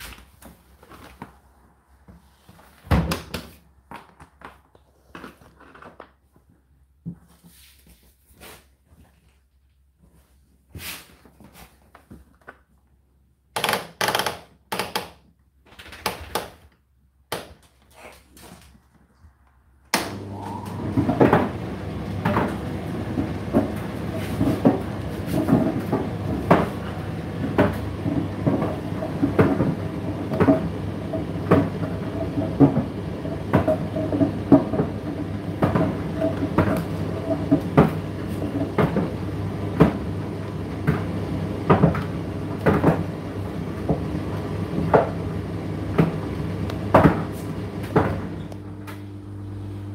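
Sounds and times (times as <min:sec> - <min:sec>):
tumble dryer motor hum: 0:19.4 - 0:49.9.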